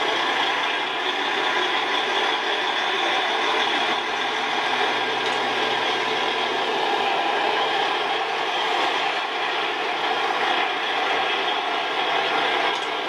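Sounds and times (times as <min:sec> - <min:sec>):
lorry diesel engine running: 0:00.0 - 0:13.0
traffic noise: 0:00.0 - 0:13.0.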